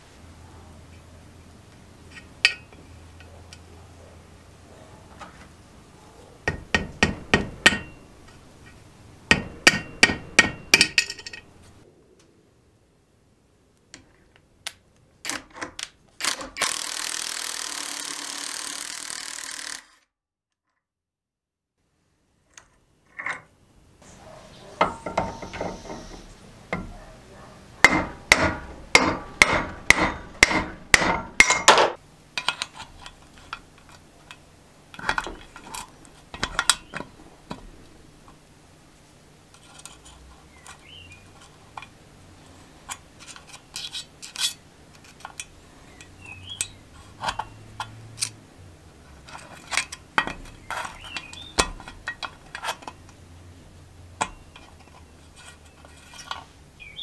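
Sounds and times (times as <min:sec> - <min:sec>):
screwdriver clinking and scraping: 0:31.3 - 0:37.6, 0:39.5 - 0:48.4, 0:49.1 - 0:53.2, 0:54.2 - 0:56.6.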